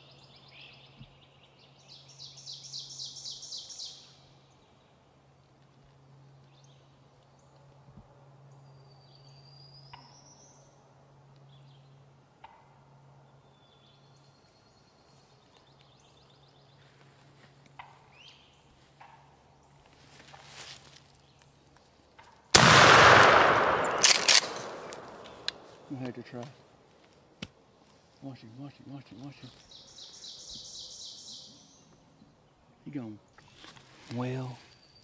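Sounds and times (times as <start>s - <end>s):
songbirds singing: 0.0s - 5.1s, 13.2s - 20.0s, 21.0s - 26.5s, 27.6s - 35.0s.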